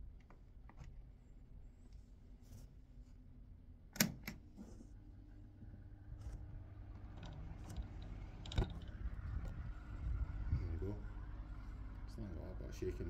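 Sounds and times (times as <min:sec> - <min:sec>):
unbalanced desk fan humming: 0:03.9 - 0:13.0.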